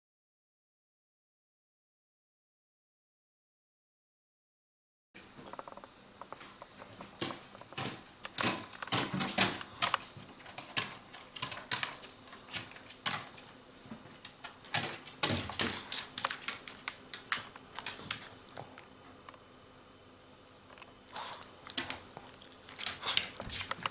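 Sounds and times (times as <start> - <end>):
dog claws clicking on wooden stairs: 5.6 - 18.7, 22.8 - 23.9.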